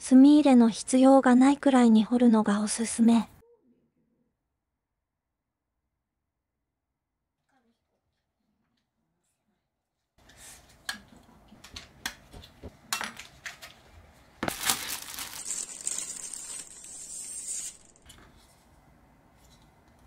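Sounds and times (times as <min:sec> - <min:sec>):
handling noise: 0:14.4 - 0:18.2.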